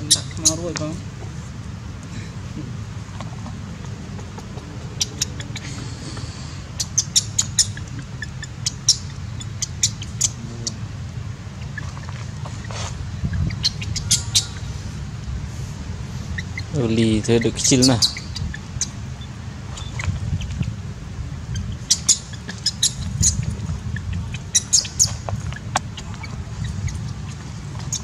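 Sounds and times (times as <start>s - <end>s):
high-pitched chirps and squeaks: 0.0s - 0.8s, 6.8s - 10.8s, 11.6s - 14.7s, 16.2s - 20.7s, 21.5s - 28.0s
steady low hum: 0.0s - 28.0s.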